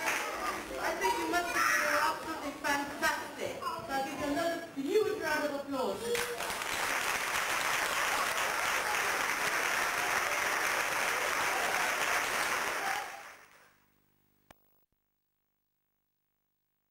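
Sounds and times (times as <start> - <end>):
audience applauding: 0.0 - 0.7, 6.1 - 13.7.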